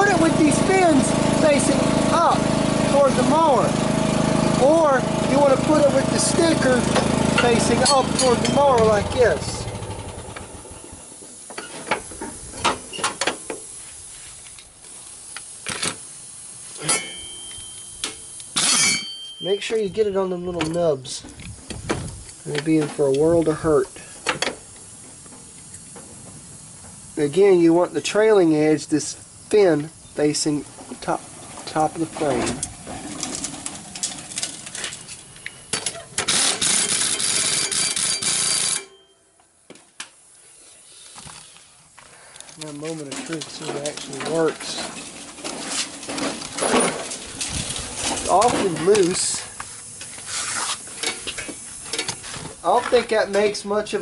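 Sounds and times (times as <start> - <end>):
ratchet wrench clicking: 36.3 - 38.9.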